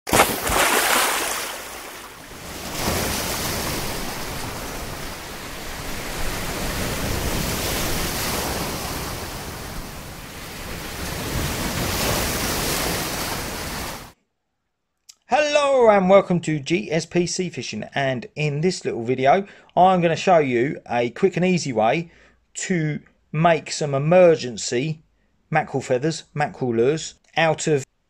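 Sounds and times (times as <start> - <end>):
sea waves breaking in surf: 0.1 - 14.2.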